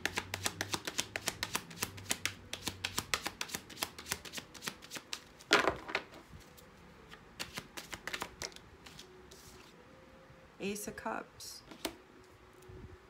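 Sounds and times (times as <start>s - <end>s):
cards being shuffled: 0.0s - 9.8s, 11.7s - 12.0s
cards rustling: 0.0s - 9.8s.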